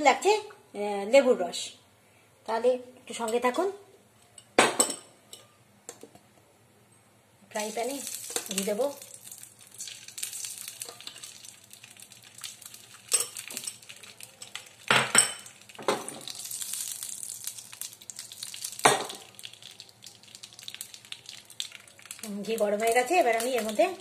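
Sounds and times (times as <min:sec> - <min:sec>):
light sizzle in frying pan: 0:07.5 - 0:24.0.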